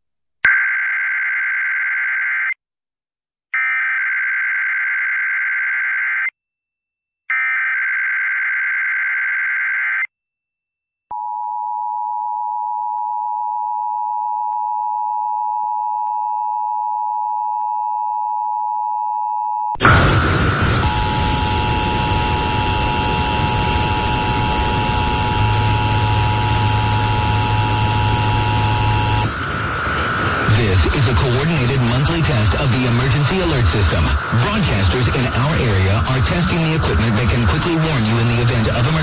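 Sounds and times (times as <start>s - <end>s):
buzzing digital data tones: 19.8s - 29.4s
steady two-tone attention signal: 19.8s - 29.4s.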